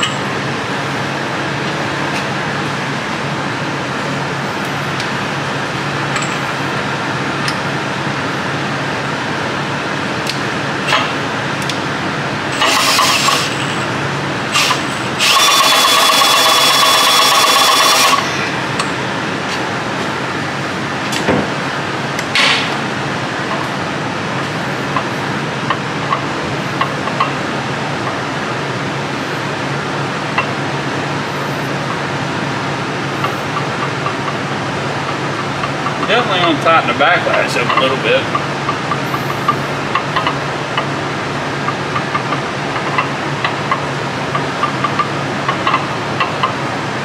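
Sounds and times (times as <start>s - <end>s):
steady hum: 0.0s - 47.0s
cordless drill spinning: 12.6s - 13.6s, 14.5s - 18.3s
gears clicking and knocking: 12.6s - 13.8s, 14.6s - 18.2s.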